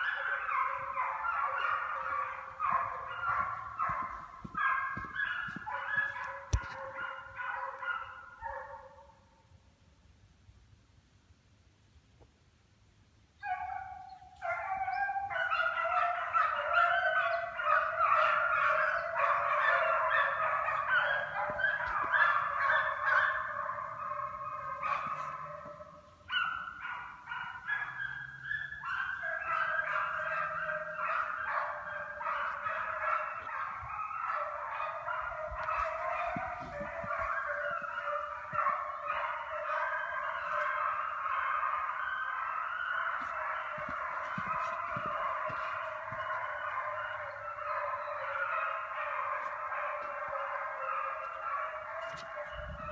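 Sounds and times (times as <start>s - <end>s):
hounds baying: 0.0s - 9.2s, 13.4s - 52.9s.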